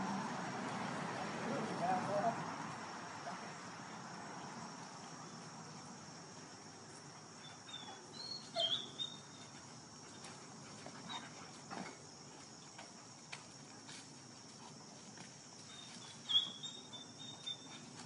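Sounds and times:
faint outdoor background: 0.0 - 18.0
dog whining: 7.7 - 9.0.

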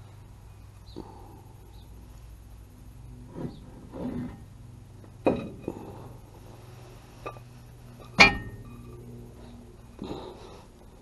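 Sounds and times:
metal clunks and clinks: 5.2 - 5.8, 8.0 - 9.0.

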